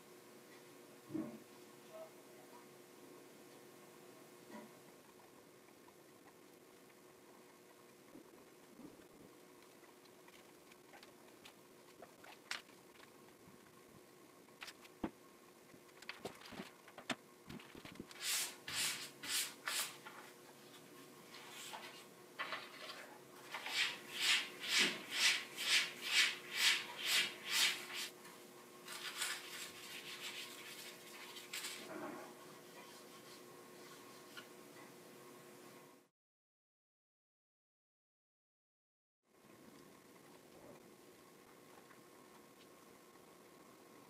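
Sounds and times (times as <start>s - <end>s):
hands rubbing a plate: 28.9s - 31.9s.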